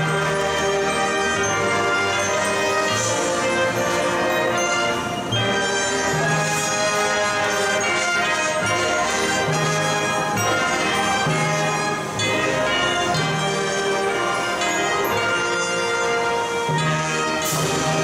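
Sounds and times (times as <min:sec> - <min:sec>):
brass section chords: 0:00.0 - 0:18.0
marching drums and percussion: 0:00.0 - 0:18.0.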